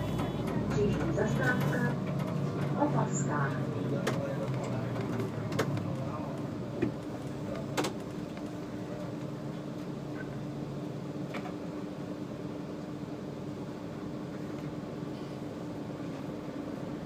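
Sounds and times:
bus engine idling: 0.0 - 17.0.

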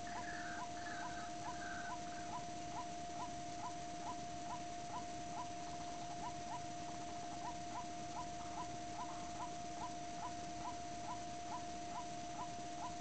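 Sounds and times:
bird calling with rising notes: 0.0 - 4.6
continuous steady tone: 0.0 - 13.0.

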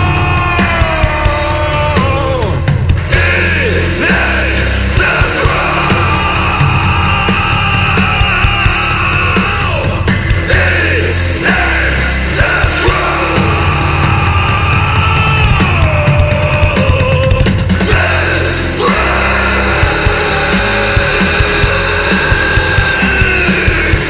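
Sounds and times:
bass chugging: 0.0 - 24.0
distorted electric guitars: 0.0 - 24.0
pounding drums: 0.0 - 24.0
yelled vocals: 0.0 - 24.0.

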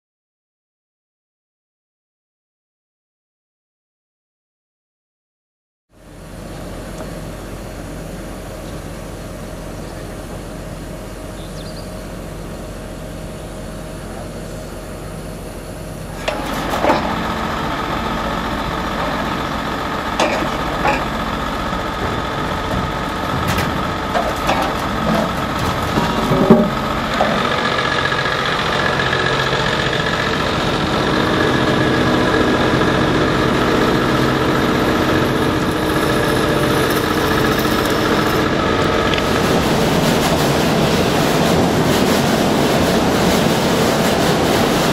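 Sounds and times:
truck engines idling: 6.0 - 44.9
metal clanks and knocks: 20.2 - 27.9.

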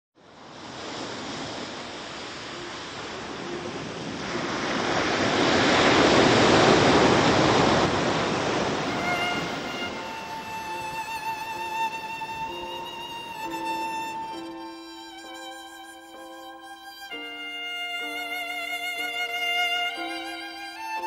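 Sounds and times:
sea surf on rocky shore: 0.2 - 21.0
faint violin: 8.5 - 21.0.

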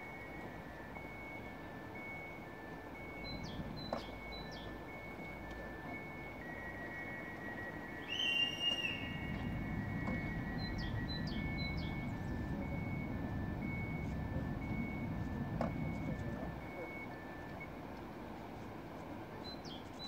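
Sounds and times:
two-pitch electronic beeping: 0.0 - 17.7
birds chirping: 2.0 - 17.4, 19.4 - 20.0
low rumble: 7.2 - 17.7.

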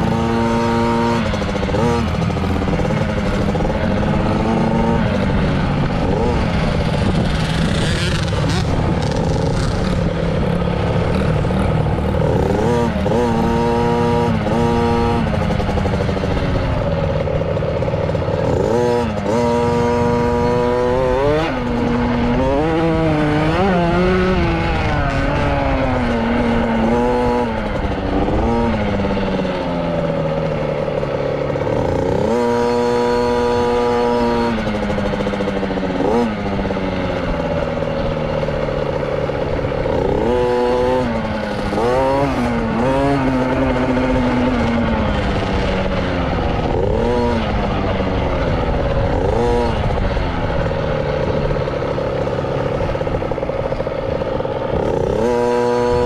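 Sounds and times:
dirt bike engine revving: 0.0 - 56.0
wind on microphone: 4.2 - 11.4.

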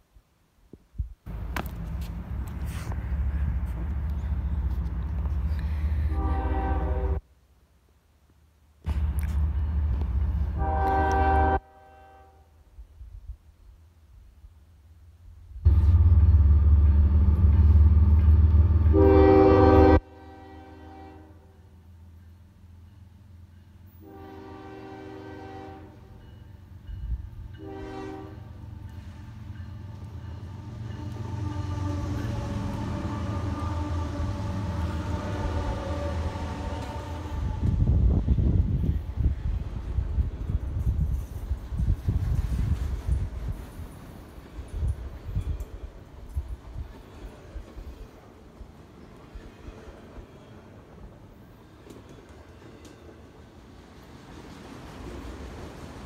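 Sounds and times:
diesel train rumbling: 1.3 - 7.2, 8.8 - 11.9, 14.9 - 56.0
train air horn blasts: 5.6 - 7.2, 10.4 - 12.6, 18.8 - 21.7, 23.9 - 26.3, 27.6 - 29.4, 30.4 - 38.2
locomotive rumble: 15.6 - 20.0.

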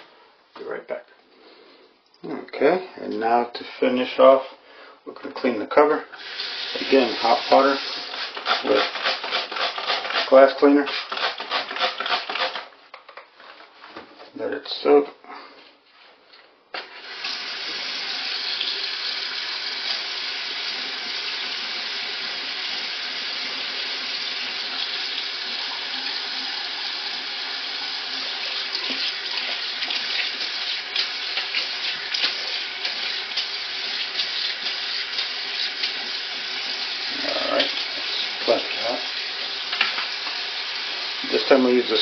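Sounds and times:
tap water running into sink: 6.2 - 12.6, 16.8 - 42.0.

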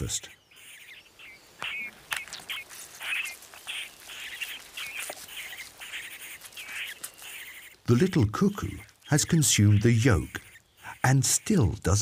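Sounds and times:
nestlings begging calls: 0.0 - 12.0.

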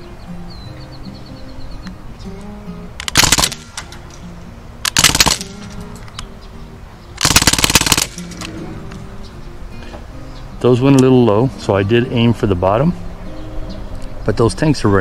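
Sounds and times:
bb rifle firing bursts: 3.0 - 4.2, 4.8 - 5.9, 7.2 - 8.6.

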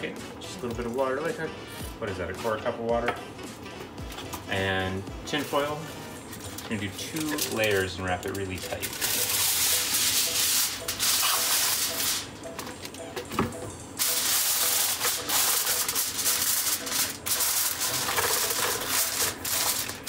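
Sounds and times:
aluminium foil crinkling: 5.4 - 12.3, 14.0 - 20.0.

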